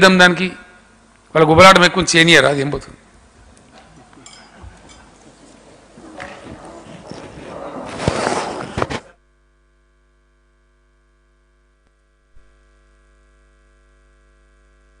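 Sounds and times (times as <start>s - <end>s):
faint mains hum: 0.0s - 15.0s
bustle of people moving: 3.4s - 9.2s.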